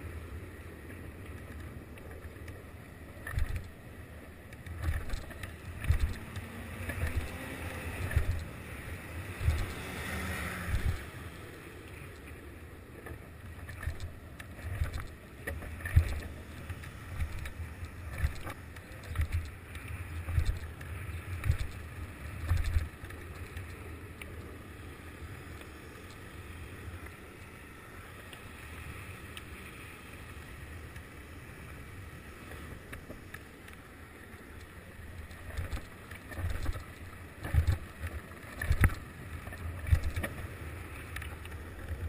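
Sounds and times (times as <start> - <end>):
rolling rumble over asphalt: 0.0 - 42.0
wind buffeting microphone: 4.6 - 11.4, 13.5 - 23.8.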